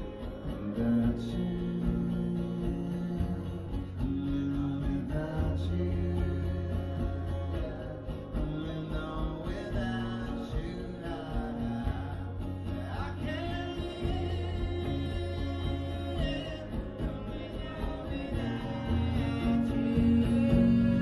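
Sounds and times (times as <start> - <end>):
acoustic guitar: 0.0 - 21.0
low bass notes: 0.0 - 21.0
person singing: 0.0 - 21.0.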